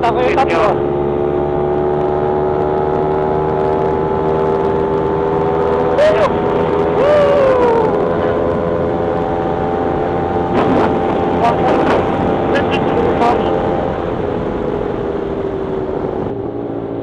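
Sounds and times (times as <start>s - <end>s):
motorcycle engine running steadily: 0.0s - 17.0s.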